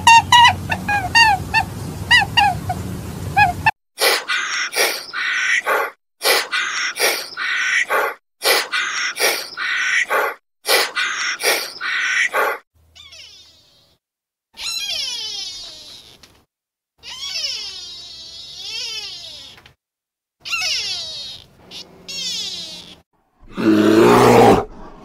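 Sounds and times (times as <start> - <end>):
birds chirping: 0.0 - 3.7
harsh honking bird calls: 0.0 - 3.7.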